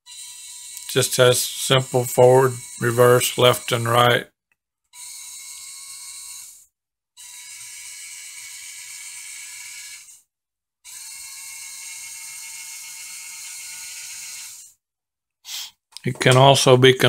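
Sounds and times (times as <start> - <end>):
small gearmotors whining: 0.0 - 4.2, 4.9 - 10.3, 10.9 - 14.8.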